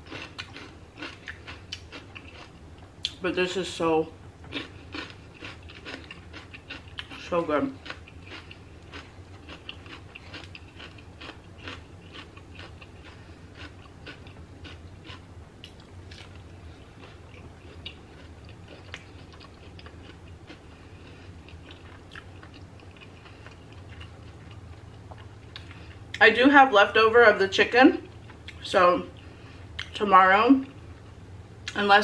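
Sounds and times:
person chewing crunchy food: 0.0s - 3.2s, 4.5s - 26.2s.

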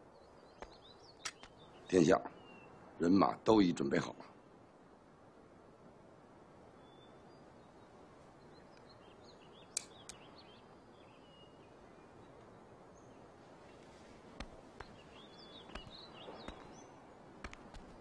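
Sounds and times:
bird chirps: 0.0s - 2.8s, 6.8s - 13.8s, 14.8s - 17.1s
sharp clicks: 1.2s - 1.6s, 9.7s - 10.2s, 17.4s - 18.0s.

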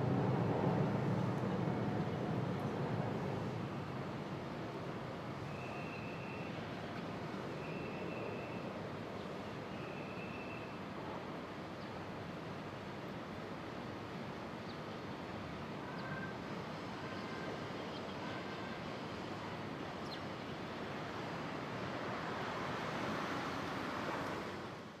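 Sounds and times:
distant jet engines: 0.0s - 9.6s.

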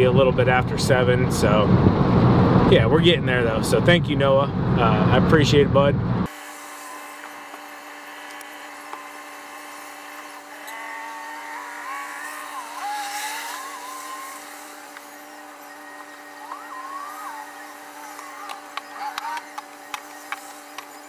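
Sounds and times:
steady cab hum: 0.0s - 21.0s.

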